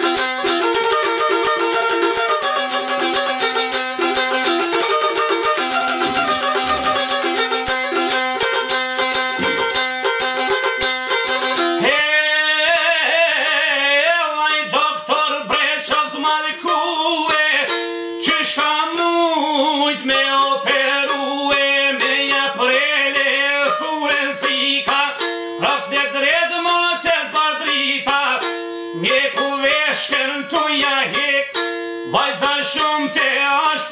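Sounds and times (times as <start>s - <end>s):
plucked long-necked lute: 0.0s - 33.9s
man singing folk song: 11.8s - 33.9s.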